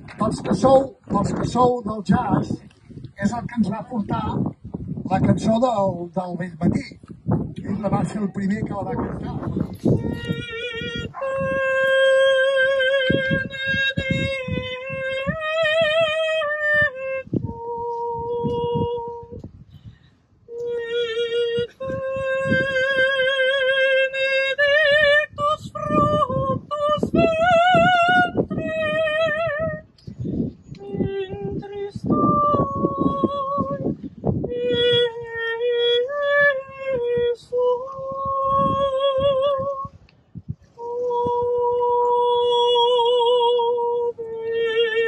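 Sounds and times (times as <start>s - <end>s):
woman singing unaccompanied: 9.8s - 19.4s, 20.5s - 29.9s, 30.7s - 40.0s, 40.6s - 45.0s.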